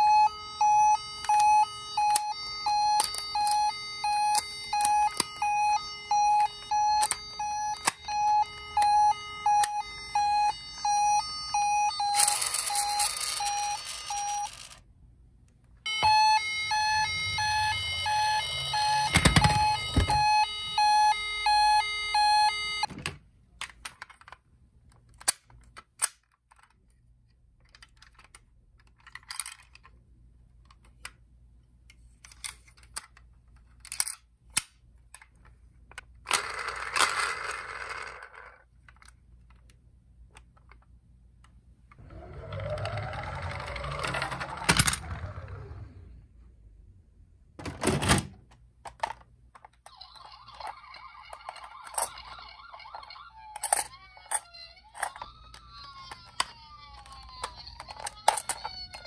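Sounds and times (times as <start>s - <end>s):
toy siren beeping: 0.0s - 14.8s, 15.9s - 22.9s, 42.0s - 46.1s, 49.8s - 59.0s
toy clicks and rustling: 11.9s - 14.8s, 27.6s - 30.0s, 32.0s - 34.3s, 48.8s - 59.0s.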